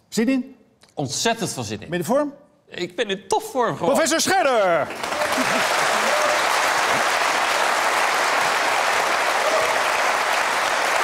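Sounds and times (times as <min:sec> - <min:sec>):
audience applauding: 0:04.8 - 0:11.0.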